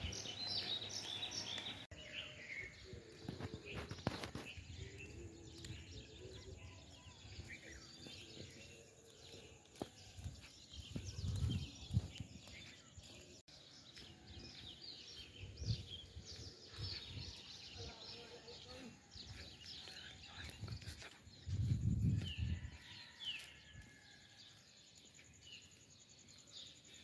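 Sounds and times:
small birds chirping: 0.0s - 27.0s
low rumbles on microphone: 10.3s - 12.6s, 20.2s - 22.7s.

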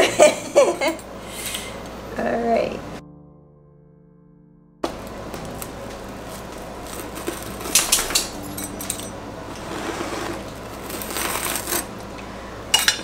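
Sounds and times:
pizza cutter crunching through crust: 5.4s - 8.4s, 9.5s - 12.2s.

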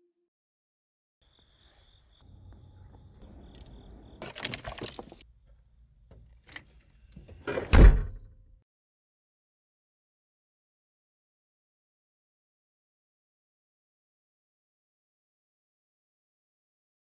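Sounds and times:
insects trilling: 1.2s - 5.2s
car trunk lid thump: 7.5s - 8.3s.

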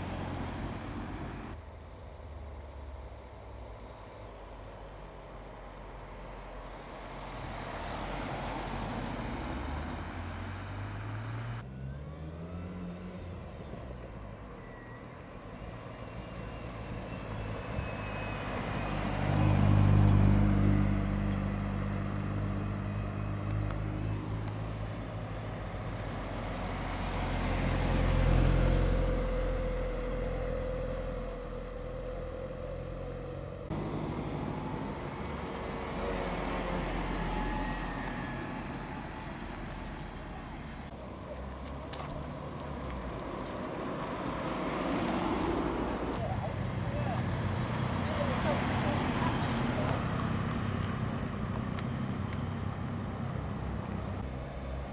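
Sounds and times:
cars driving past: 0.0s - 54.9s.

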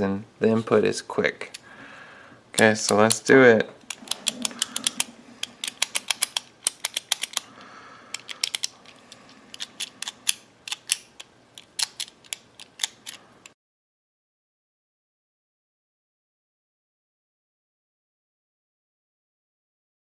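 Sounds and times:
padlock shackle tugged: 2.6s - 13.5s
padlock dial clicking: 3.8s - 13.5s.

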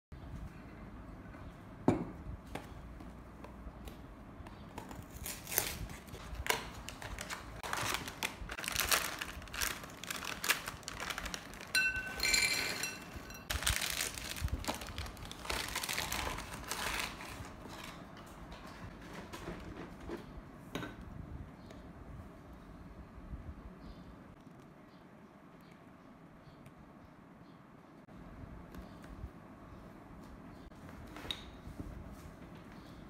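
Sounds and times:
plastic bag crinkling: 5.4s - 18.0s
cereal rattling into glass bowl: 11.3s - 14.3s.

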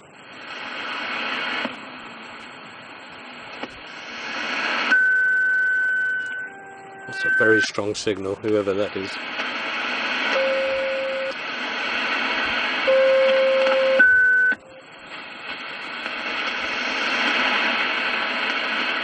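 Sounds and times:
radio static hiss: 0.0s - 19.0s
radio whistle tones: 4.4s - 7.9s, 12.7s - 14.6s.

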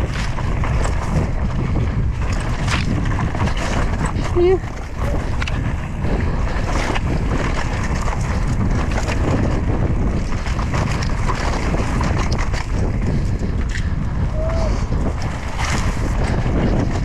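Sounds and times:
bike clicking and rattling: 0.0s - 17.0s
wind buffeting microphone: 0.0s - 17.0s.

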